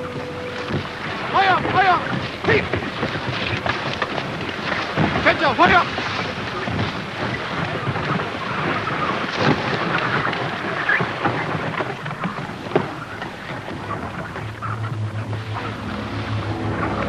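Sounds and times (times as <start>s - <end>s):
strong wind buffeting microphone: 0.0s - 17.0s.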